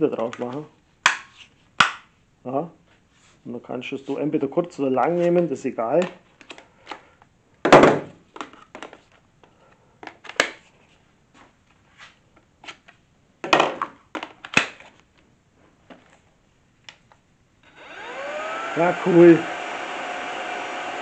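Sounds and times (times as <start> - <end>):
plastic parts clicking and knocking: 7.6 - 9.2, 13.4 - 15.0.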